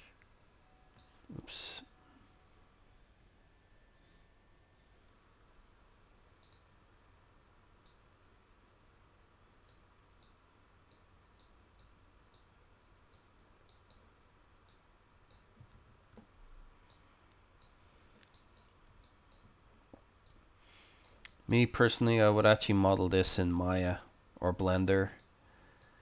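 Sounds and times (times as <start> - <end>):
computer mouse clicks: 6.4 - 6.7, 7.8 - 8.0, 9.6 - 12.5, 13.1 - 19.6.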